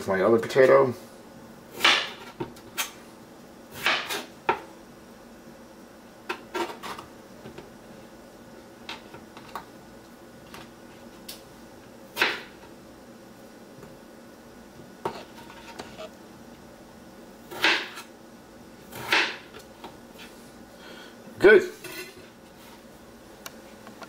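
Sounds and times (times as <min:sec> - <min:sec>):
knife cutting potato on board: 0:03.7 - 0:04.6, 0:15.0 - 0:16.1, 0:17.5 - 0:18.1, 0:18.9 - 0:20.3.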